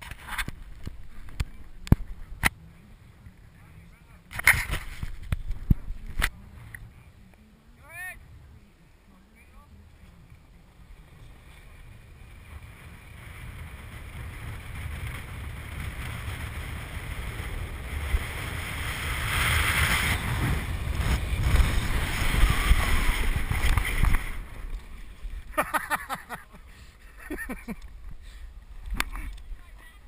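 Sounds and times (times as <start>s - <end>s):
snow tube sliding over snow: 9.1s - 27.8s
wind buffeting microphone: 10.3s - 25.6s.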